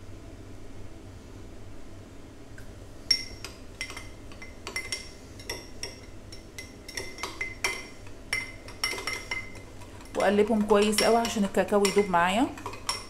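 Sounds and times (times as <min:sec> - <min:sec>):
metal spoon clinking glass jar: 0:03.1 - 0:13.0.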